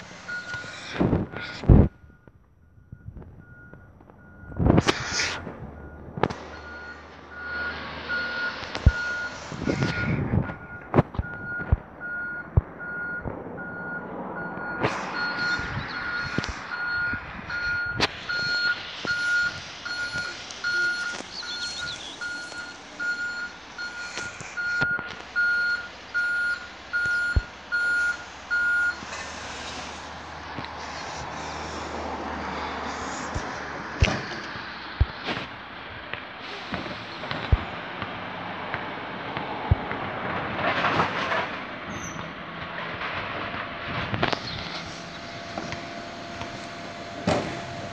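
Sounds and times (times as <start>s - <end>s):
truck reversing alarm beeping: 0.0s - 30.0s, 44.3s - 47.9s
diesel engine running: 0.0s - 47.9s.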